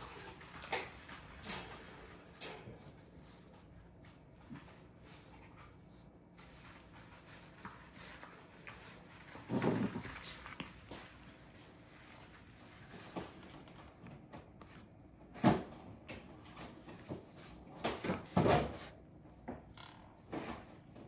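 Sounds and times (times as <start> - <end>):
puppies knocking and scuffling: 0.0 - 21.0.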